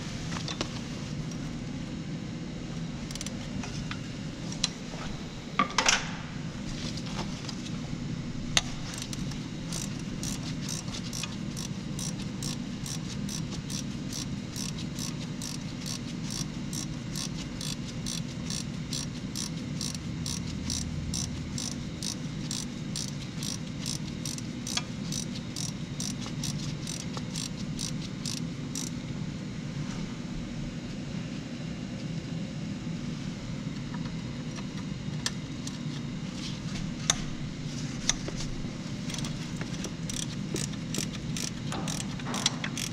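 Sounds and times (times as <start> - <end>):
low steady hum: 0.0 - 42.9
ratchet wrench clicking: 3.1 - 3.3, 8.9 - 28.9, 40.1 - 42.9.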